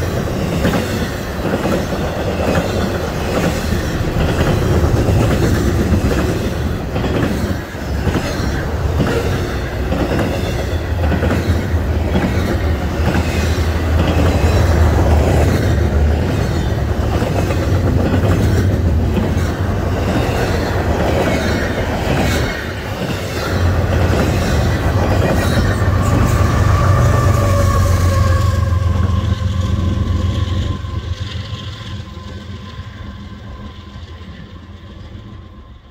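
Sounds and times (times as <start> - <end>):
freight train rumble: 0.0 - 35.9
faint ringing rail tone: 25.2 - 35.9.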